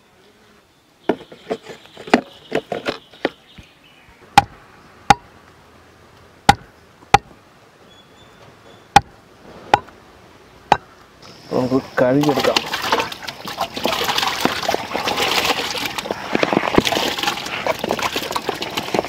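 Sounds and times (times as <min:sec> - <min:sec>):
blade chopping meat on wooden block: 0:06.5 - 0:07.3.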